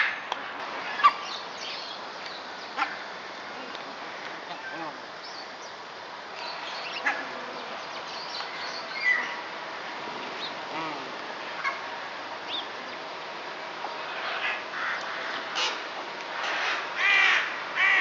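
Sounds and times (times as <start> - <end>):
steady background hiss: 0.0 - 18.0
bird calls and chirps: 0.9 - 3.0, 6.4 - 9.4.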